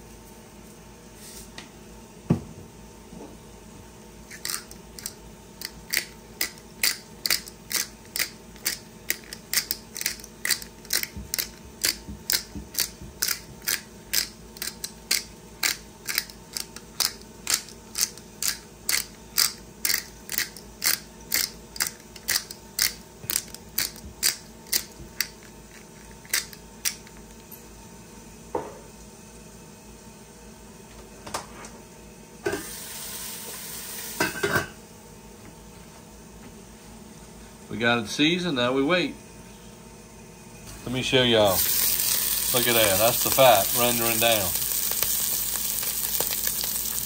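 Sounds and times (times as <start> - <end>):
pepper mill grinding: 4.3 - 27.0, 41.3 - 47.0.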